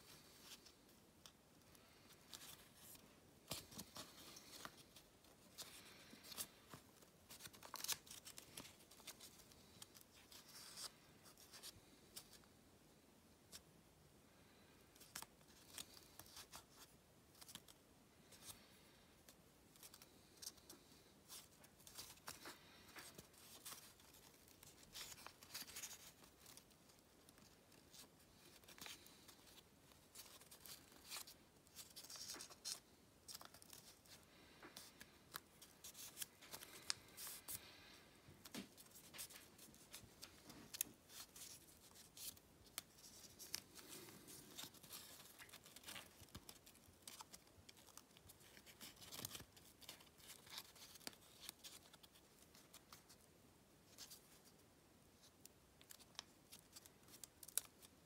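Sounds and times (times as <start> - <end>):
paper being folded: 0.1 - 12.5, 19.7 - 53.3.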